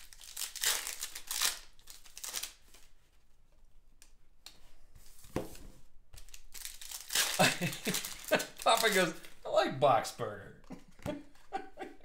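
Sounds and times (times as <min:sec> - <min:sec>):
foil wrapper and cards crinkling: 0:00.0 - 0:03.0, 0:06.2 - 0:09.4.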